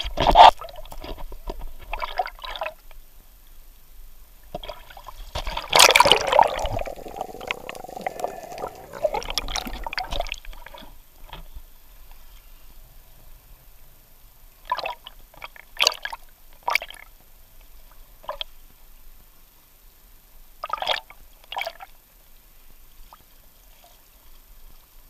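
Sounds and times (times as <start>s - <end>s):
seawater splashing: 5.5s - 10.2s
underwater bubbling and gurgling: 5.6s - 10.4s.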